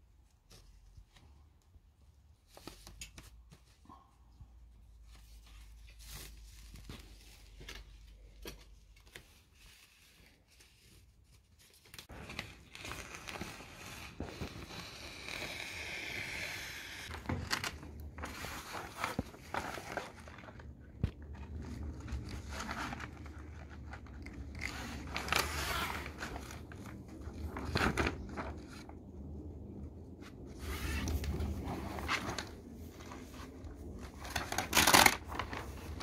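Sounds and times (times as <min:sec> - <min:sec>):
plastic film crinkling: 0:33.8 - 0:36.0.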